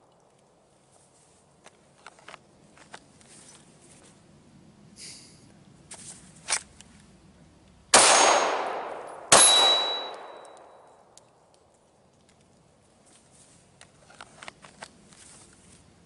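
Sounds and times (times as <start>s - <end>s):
handgun shots echoing: 7.9s - 11.1s
pistol handling clicks: 8.0s - 12.5s
high metallic ring: 8.3s - 11.0s.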